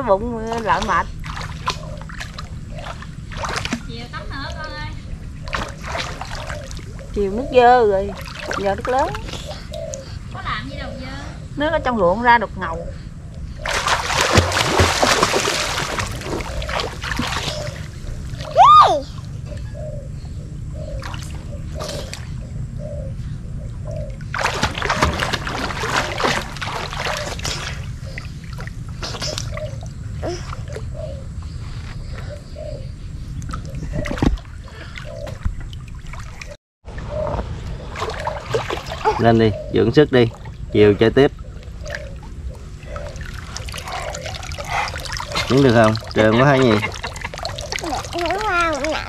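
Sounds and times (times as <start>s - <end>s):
child splashing in water: 0.5s - 3.9s, 5.5s - 6.9s, 13.6s - 19.1s, 24.3s - 30.6s, 37.9s - 39.3s, 43.0s - 49.0s.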